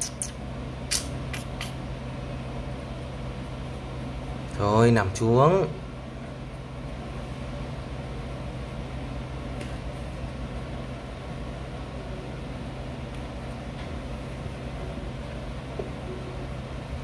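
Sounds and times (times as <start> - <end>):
low machine hum: 0.0 - 17.0.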